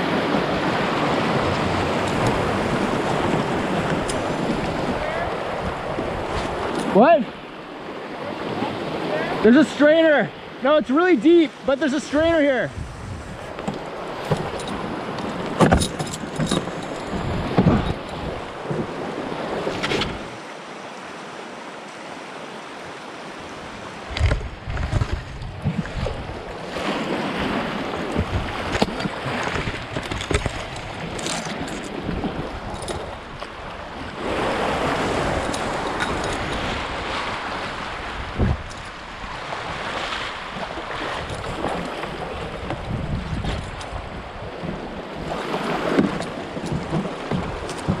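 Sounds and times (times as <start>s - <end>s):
wind on microphone: 0.0s - 7.0s, 12.2s - 20.4s, 23.7s - 48.0s
river current rushing: 0.0s - 48.0s
short knocks: 46.0s - 48.0s.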